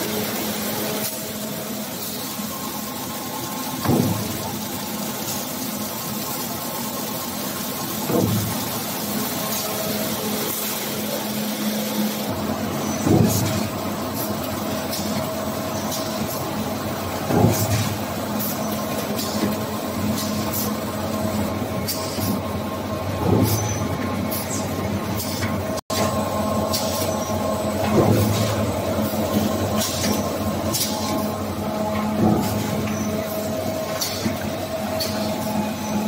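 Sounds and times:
machine humming: 0.0s - 36.0s
machine clunk: 3.8s - 4.5s, 8.1s - 8.6s, 12.9s - 13.7s.

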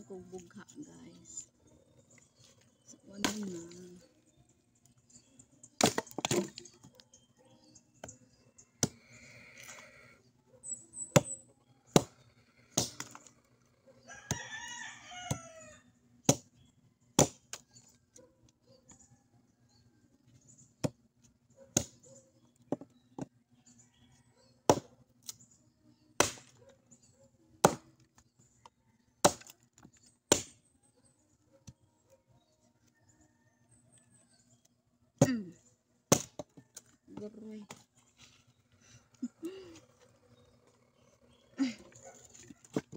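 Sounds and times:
firewood being chopped: 5.8s - 6.7s, 11.0s - 13.3s, 16.2s - 16.5s, 17.2s - 17.6s, 20.8s - 21.0s, 21.8s - 22.0s, 24.7s - 25.3s, 26.2s - 26.5s, 27.6s - 28.0s, 29.2s - 30.6s, 36.1s - 36.9s
rooster crowing: 14.1s - 15.8s.

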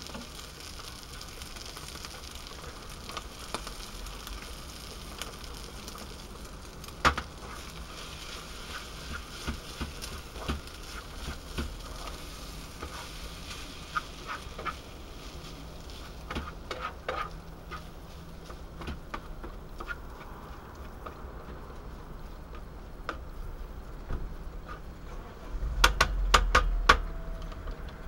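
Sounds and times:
food frying in a pan: 0.0s - 28.0s
spoon scraping a pan: 15.9s - 17.9s.

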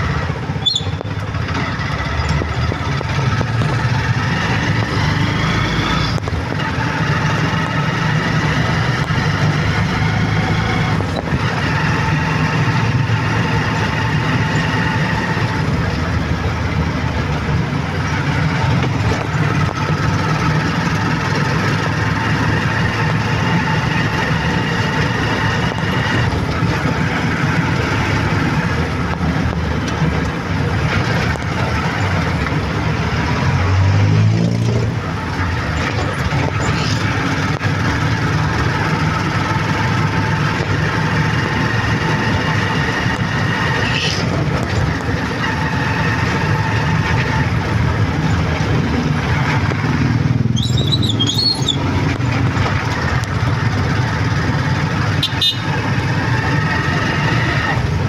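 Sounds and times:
vehicle engine rumble: 0.0s - 58.0s
rising whistle: 0.6s - 1.0s
rumble rising in pitch: 1.8s - 6.4s.

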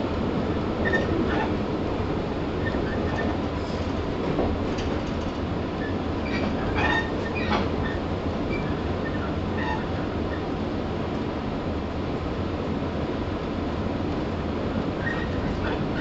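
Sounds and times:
train wheels rumbling on rail: 0.0s - 16.0s
wheel squeals: 0.8s - 1.6s, 2.6s - 3.4s, 5.8s - 9.9s, 15.0s - 16.0s
clacks over rail joints: 2.6s - 9.9s, 15.0s - 16.0s.

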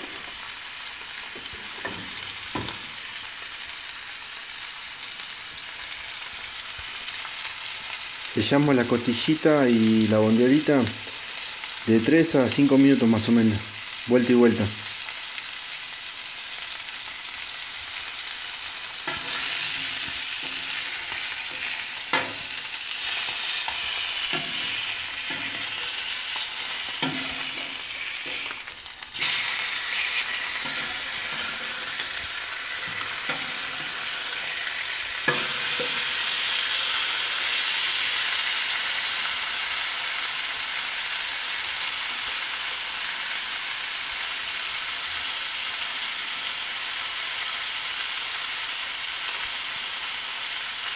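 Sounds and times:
meat sizzling on a griddle: 0.0s - 50.9s
metal spatula knocking and scraping: 21.5s - 22.6s, 24.3s - 26.0s, 26.9s - 28.5s.

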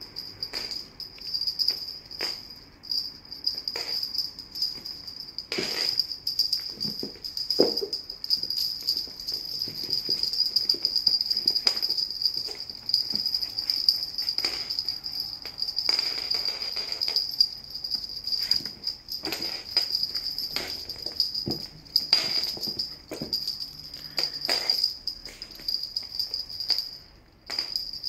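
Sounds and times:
small bells jingling: 0.0s - 28.0s
knocks and scuffs on floor: 6.8s - 8.6s.

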